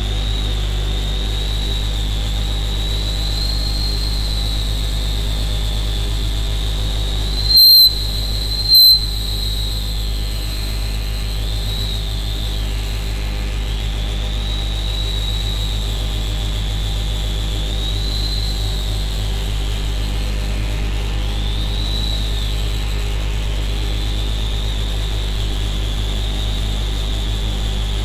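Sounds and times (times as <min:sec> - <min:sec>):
low electronic drone: 0:07.2 - 0:09.6
high whistling tone: 0:07.2 - 0:10.2
loud high beeps: 0:07.4 - 0:09.8.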